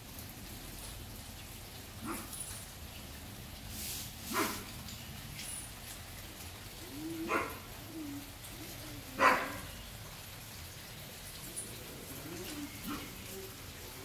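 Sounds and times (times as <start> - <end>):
dogs barking: 2.0 - 2.3, 4.3 - 4.7, 7.2 - 7.8, 9.1 - 9.7, 12.6 - 13.3.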